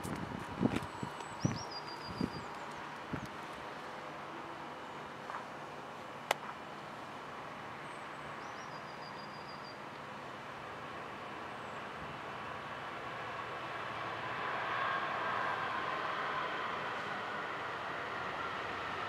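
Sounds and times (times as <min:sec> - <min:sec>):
distant diesel locomotive: 0:00.0 - 0:19.0
outdoor background noise: 0:00.0 - 0:19.0.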